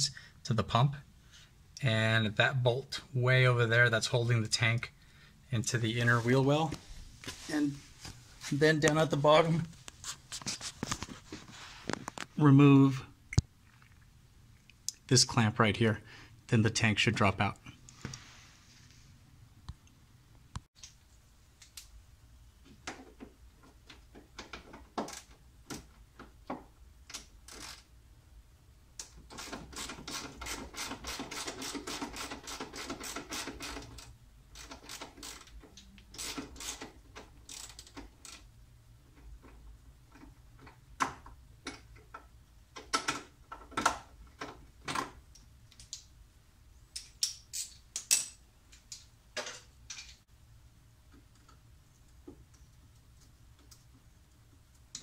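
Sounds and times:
ratchet tool clicking: 29.4s - 35.6s.

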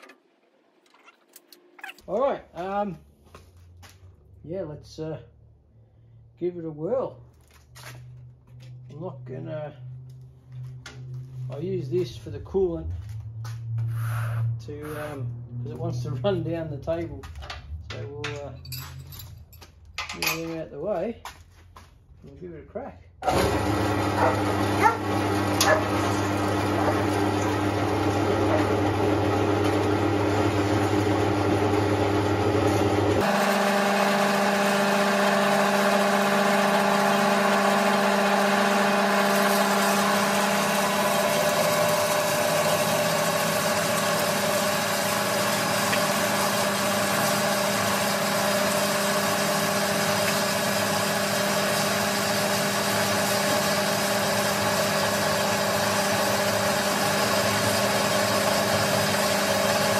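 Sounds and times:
bandsaw cutting metal: 23.3s - 28.8s, 32.7s - 59.9s.

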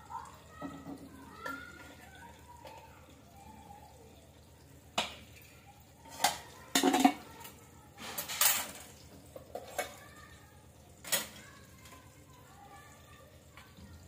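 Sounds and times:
steel containers clinking: 6.0s - 7.3s, 8.0s - 10.0s.

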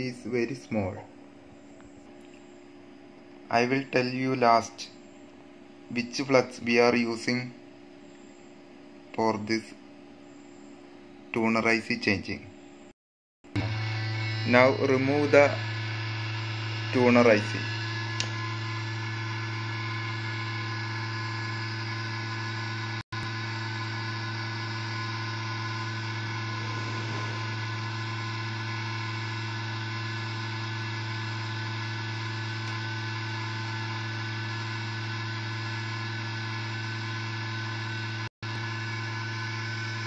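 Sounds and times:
hot air station humming and blowing: 13.6s - 37.1s.

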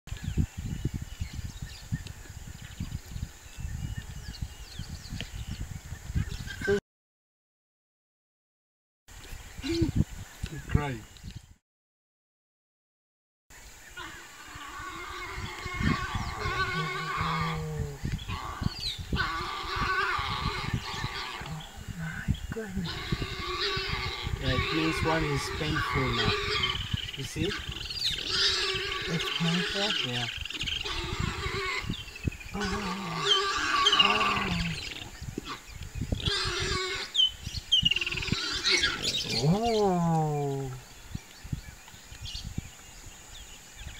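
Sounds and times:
birds chirping and trilling: 0.1s - 6.8s, 9.1s - 11.6s, 13.5s - 43.9s
wavering animal calls: 13.9s - 41.1s
warthogs grunting and snorting: 14.0s - 37.3s, 37.9s - 40.8s.

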